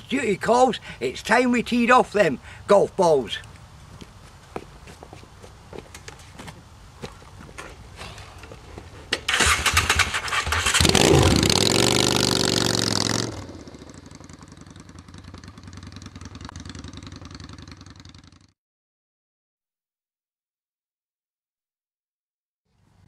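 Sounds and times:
motorcycle engine revving: 0:09.3 - 0:18.5.

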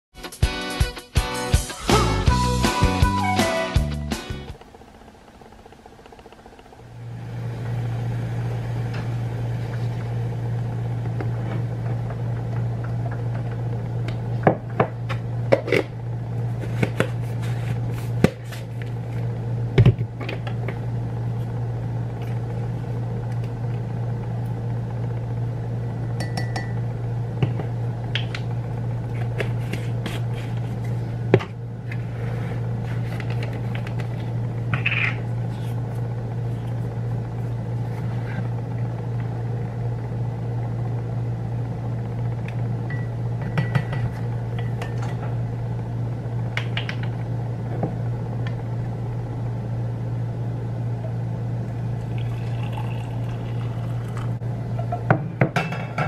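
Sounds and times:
steady low hum: 0:01.7 - 0:56.0.

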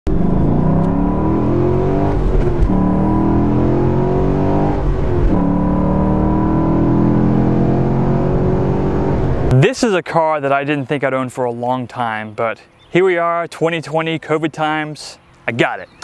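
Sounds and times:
car engine accelerating: 0:00.1 - 0:09.6.

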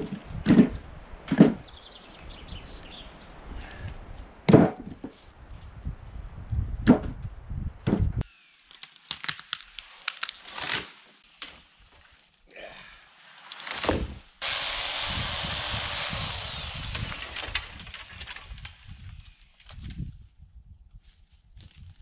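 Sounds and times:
wood knocking and cracking: 0:04.5 - 0:05.2, 0:16.4 - 0:18.9
power saw cutting wood: 0:08.2 - 0:08.8, 0:14.4 - 0:18.1.

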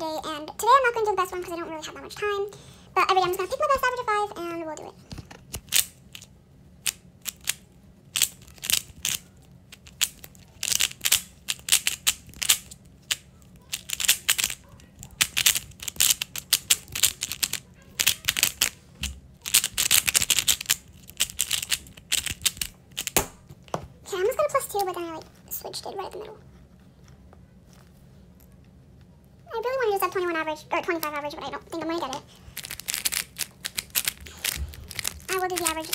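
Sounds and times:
puzzle cube clicking: 0:05.3 - 0:23.4, 0:32.1 - 0:35.9.

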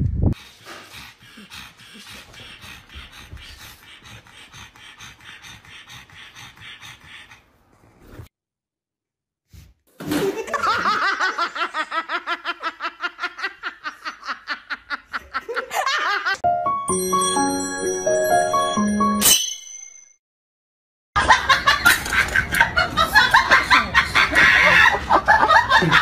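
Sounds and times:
person laughing hard: 0:10.1 - 0:16.4, 0:21.2 - 0:26.0.

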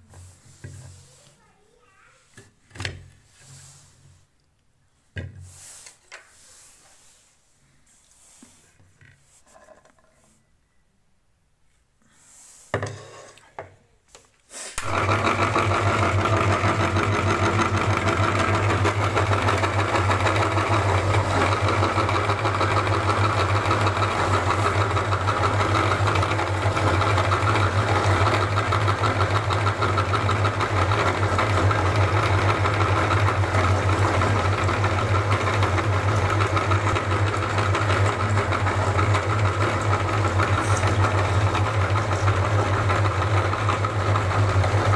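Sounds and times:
meat grinder motor humming: 0:14.8 - 0:44.9.

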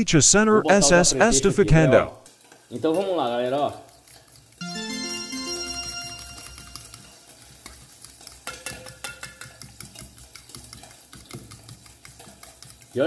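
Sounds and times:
fork beating eggs in metal bowl: 0:02.3 - 0:04.6, 0:06.8 - 0:13.0
short musical flourish: 0:04.6 - 0:07.2.

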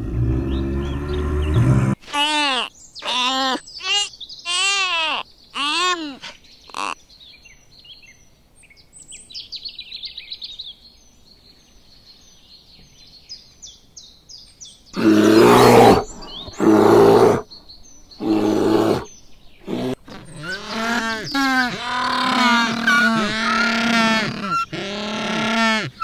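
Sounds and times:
small birds chirping: 0:00.3 - 0:26.0
bear growling: 0:15.0 - 0:17.5, 0:18.2 - 0:26.0.

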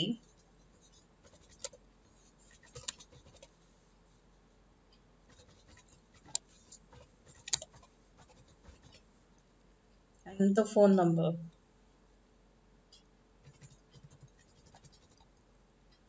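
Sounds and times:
keyboard typing clicks: 0:02.5 - 0:03.5, 0:05.3 - 0:08.9.

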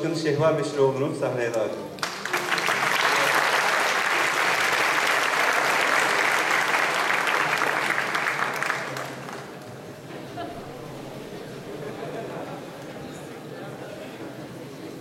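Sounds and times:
audience applauding: 0:02.0 - 0:11.8.

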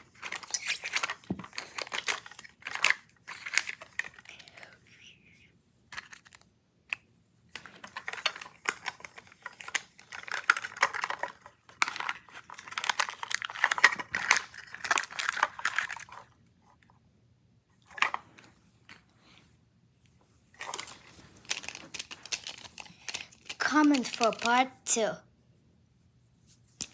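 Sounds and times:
packaging crinkling and rustling: 0:00.0 - 0:04.5, 0:07.6 - 0:16.4, 0:20.5 - 0:24.6.

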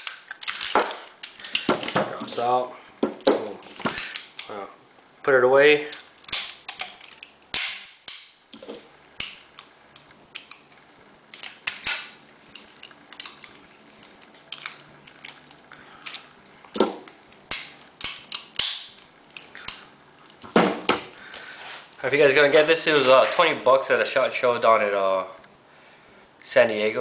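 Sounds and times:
pistol metallic clicks: 0:17.5 - 0:19.1.

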